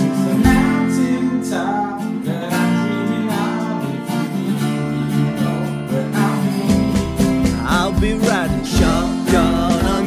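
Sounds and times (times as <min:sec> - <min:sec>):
strummed acoustic guitar: 0:00.0 - 0:10.0
steady drum beat: 0:00.4 - 0:00.8, 0:06.2 - 0:10.0.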